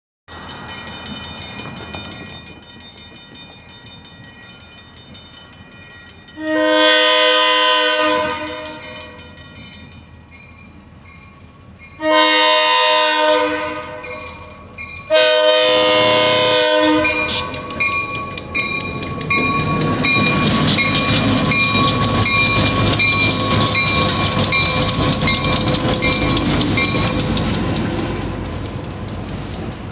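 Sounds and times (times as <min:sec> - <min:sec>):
train wheels clicking over rail joints: 0:00.3 - 0:06.4, 0:13.8 - 0:15.1, 0:15.7 - 0:29.9
crossing bell ringing: 0:00.3 - 0:29.9
locomotive horn blasts: 0:06.4 - 0:09.2, 0:12.0 - 0:14.5, 0:15.1 - 0:17.8.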